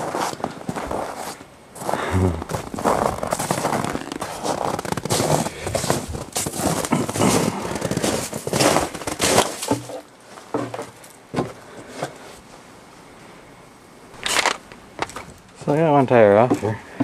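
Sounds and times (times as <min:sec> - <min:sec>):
footsteps crunching in snow: 0:00.0 - 0:10.9.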